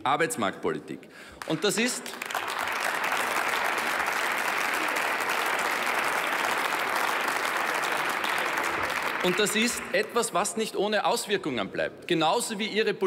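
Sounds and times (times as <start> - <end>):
audience applauding: 1.4 - 10.3.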